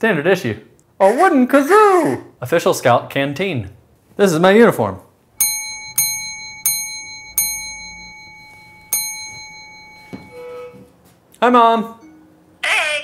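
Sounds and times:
small bell ringing: 0:05.4 - 0:10.9.

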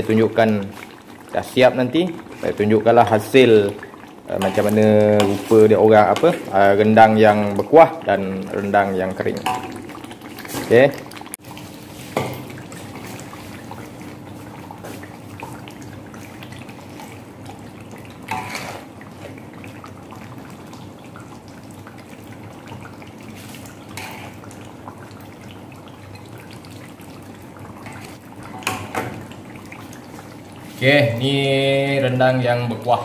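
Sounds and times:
wet drips and plops of gravy: 0:00.0 - 0:31.2.

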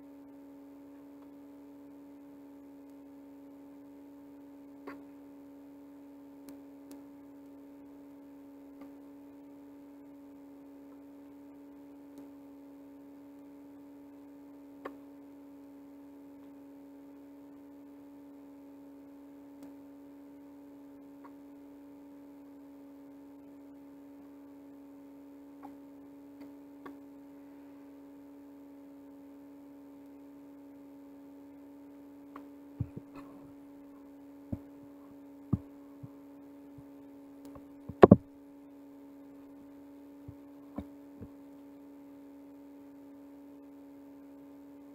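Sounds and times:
steady electrical hum: 0:00.0 - 0:44.9
faint clicks: 0:14.8 - 0:15.0
recorder handling knocks: 0:37.9 - 0:38.2.

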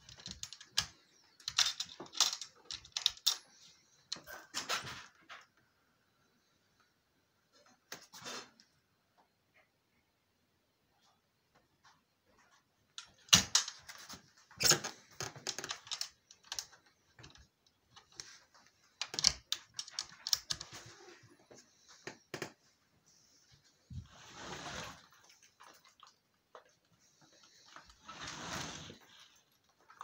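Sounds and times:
rustling scrape: 0:23.3 - 0:25.4, 0:27.5 - 0:29.4.

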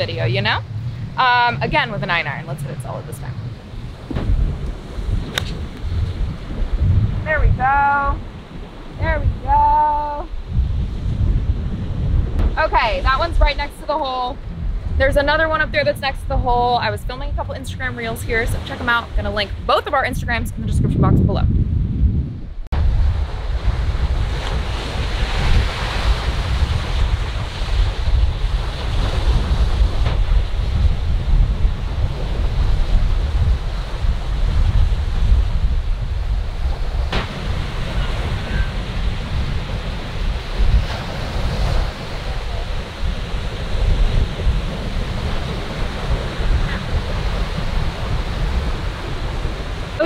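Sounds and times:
wind buffeting microphone: 0:00.0 - 0:50.0
surf washing onto rocks: 0:22.8 - 0:50.0.

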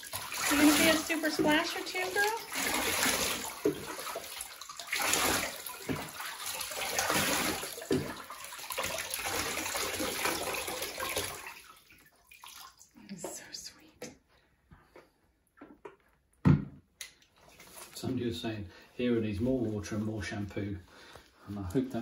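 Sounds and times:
bathwater splashing: 0:00.0 - 0:13.6.

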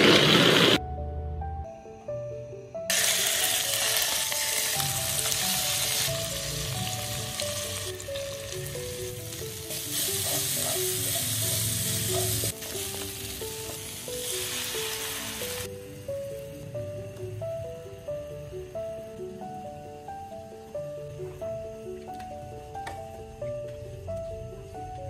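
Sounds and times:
hot oil sizzling in frying pan: 0:02.9 - 0:16.6.

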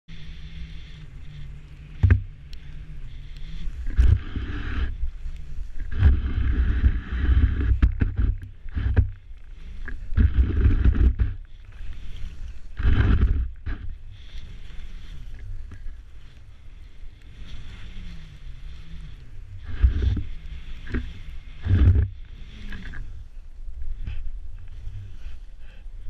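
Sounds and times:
low wind rumble: 0:00.1 - 0:26.0
skis swishing through powder snow: 0:17.3 - 0:19.4.

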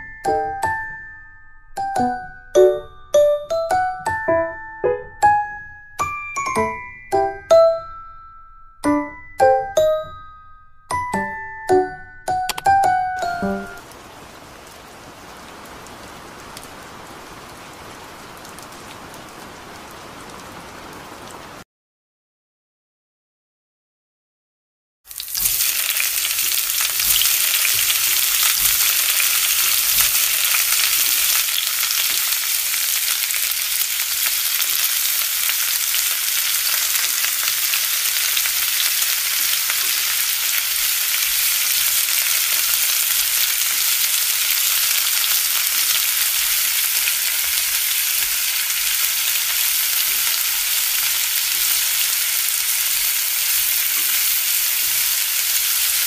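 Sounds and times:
oil sizzling in a frying pan: 0:13.2 - 0:21.6, 0:25.1 - 0:56.0.

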